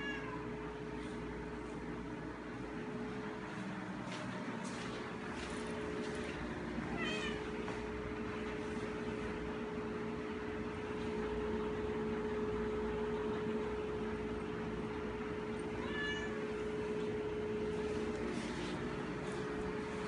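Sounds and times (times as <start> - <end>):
cat meowing: 0.0 - 0.5, 6.9 - 7.6, 15.7 - 16.6
steady hum: 0.0 - 20.0.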